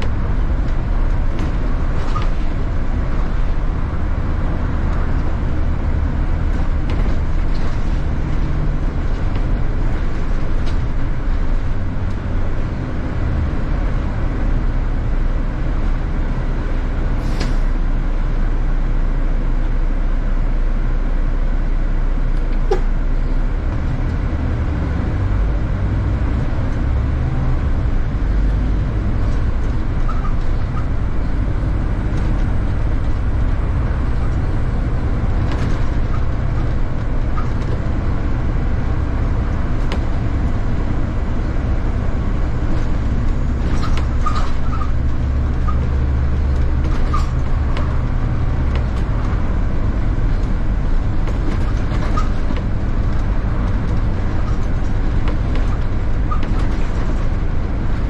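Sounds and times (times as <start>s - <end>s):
rattles clicks and squeaks: 0.0s - 3.7s, 4.9s - 12.3s, 22.4s - 23.0s, 25.9s - 58.0s
bus engine and road drone: 0.0s - 58.0s.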